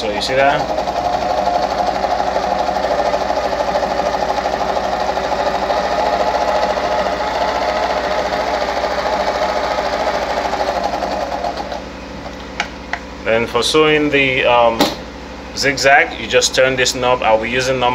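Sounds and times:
sewing machine stitching: 0:00.0 - 0:11.8.

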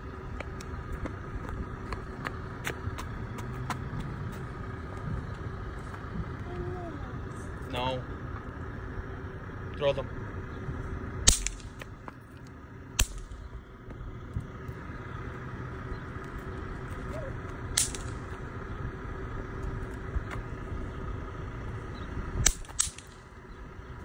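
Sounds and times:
bang snaps popping on asphalt: 0:11.2 - 0:14.0, 0:17.7 - 0:18.4, 0:22.4 - 0:23.3.

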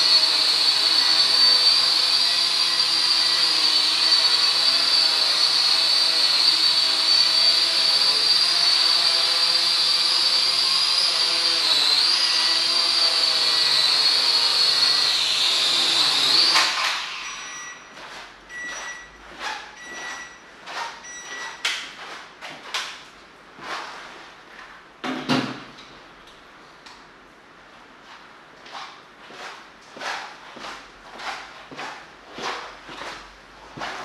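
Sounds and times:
toy drone propellers whining: 0:00.0 - 0:17.8
short beeps: 0:17.2 - 0:17.9, 0:18.5 - 0:19.2, 0:19.8 - 0:21.6.

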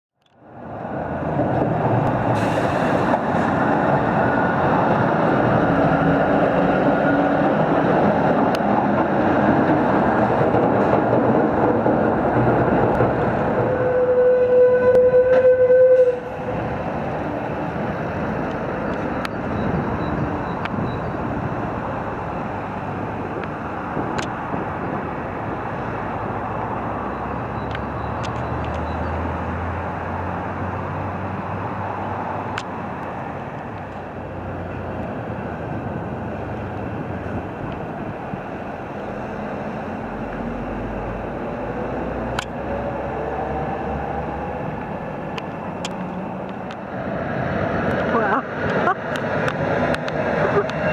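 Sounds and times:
road traffic passing: 0:00.2 - 0:50.9
engine speeding up: 0:38.8 - 0:50.9.

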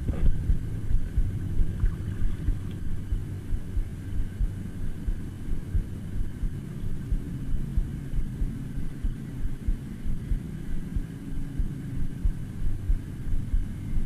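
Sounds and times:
low steady rumble: 0:00.0 - 0:14.0
uneven low thumping: 0:00.0 - 0:14.0.

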